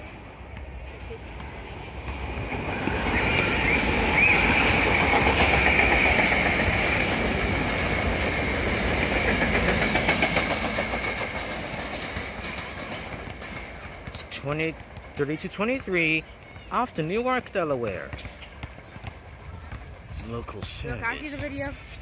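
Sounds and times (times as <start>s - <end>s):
wheels clattering over rails: 0.0s - 15.2s
electric train passing: 0.0s - 15.6s.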